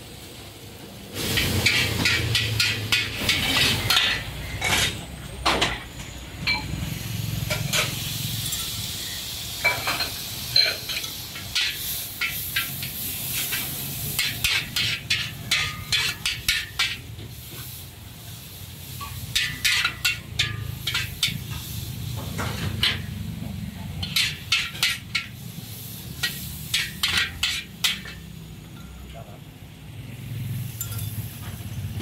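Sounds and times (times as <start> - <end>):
noodles sizzling in a wok: 0.0 - 32.0
metal spatula scraping a wok: 1.2 - 5.2, 6.4 - 17.9, 18.8 - 28.4.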